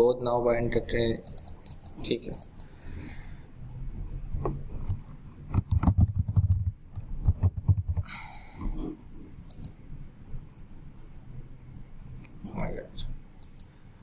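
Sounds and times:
keyboard typing: 1.1 - 2.8, 4.7 - 8.1, 9.4 - 9.8, 13.4 - 13.8.

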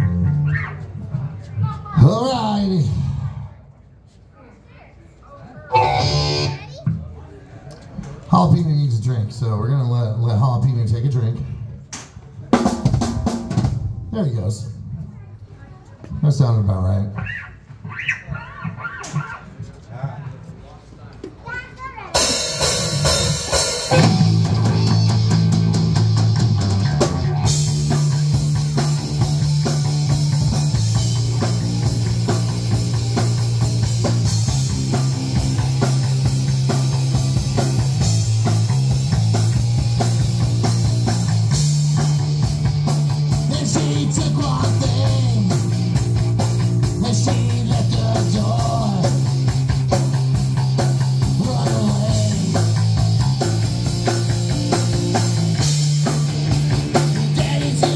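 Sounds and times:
loud bass line: 5.7 - 6.8, 22.8 - 57.9
rock band playing live: 5.7 - 7.0, 22.1 - 57.9.

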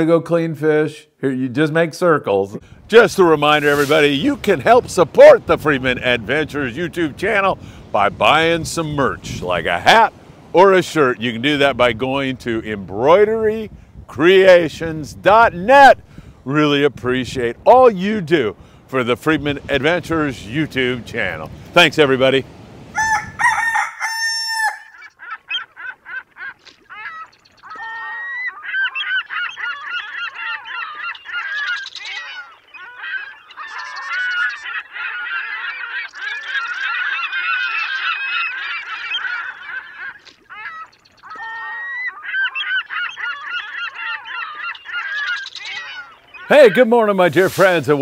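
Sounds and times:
geese honking: 3.0 - 7.6, 23.0 - 48.0.

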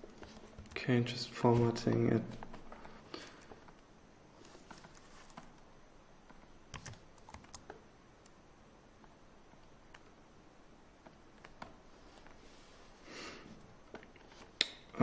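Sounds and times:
computer keyboard clicks: 6.3 - 8.4.

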